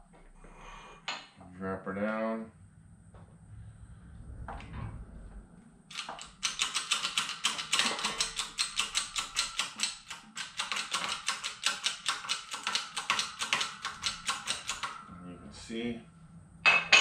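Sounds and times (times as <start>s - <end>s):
sharp metallic clicks: 5.9s - 15.0s.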